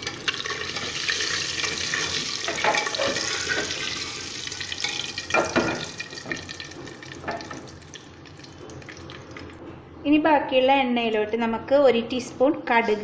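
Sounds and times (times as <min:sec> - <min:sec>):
oil sizzling: 0:00.0 - 0:09.6.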